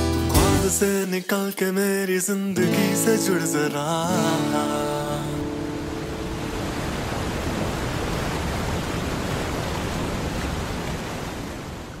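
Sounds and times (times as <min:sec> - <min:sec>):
steady rushing noise: 0:05.4 - 0:11.5.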